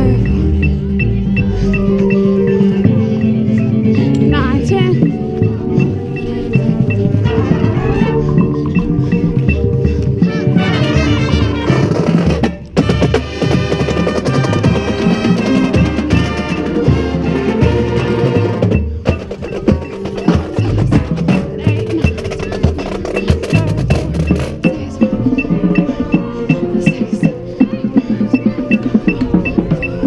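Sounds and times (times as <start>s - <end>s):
wind and brass instruments: 0.0s - 30.0s
snare and tenor drums: 10.0s - 24.8s.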